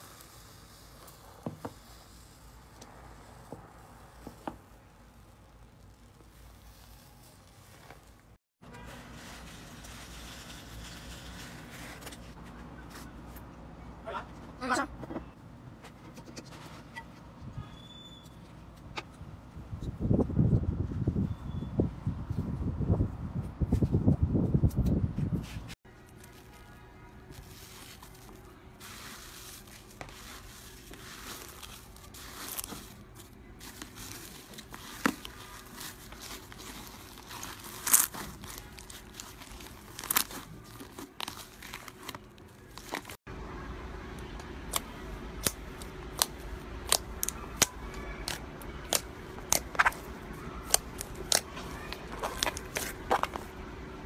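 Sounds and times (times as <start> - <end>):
slime squelching and crackling: 0.0 - 12.3, 27.2 - 43.2, 44.7 - 53.5.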